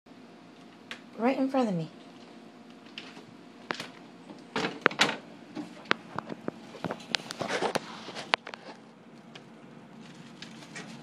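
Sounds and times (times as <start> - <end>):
cat scratching refrigerator door: 9.9 - 11.0.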